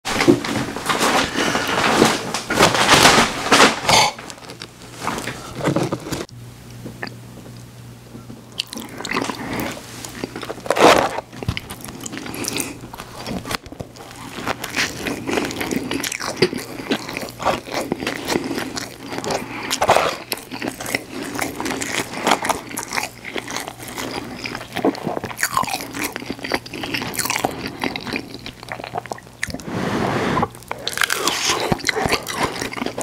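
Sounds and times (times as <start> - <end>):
crunchy bites and chewing: 8.6 - 29.6, 30.5 - 33.0.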